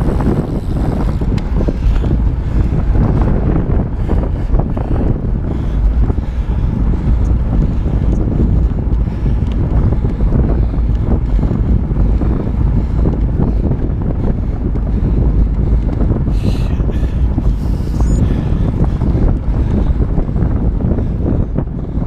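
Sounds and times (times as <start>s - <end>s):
wind buffeting microphone: 0.0s - 22.0s.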